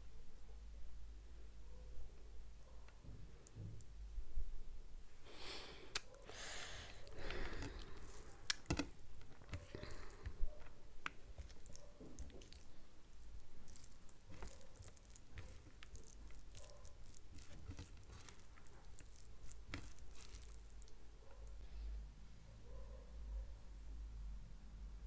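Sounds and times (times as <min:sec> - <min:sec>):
wet squishing of food by hand: 0:05.4 - 0:21.8
chewing: 0:05.9 - 0:21.6.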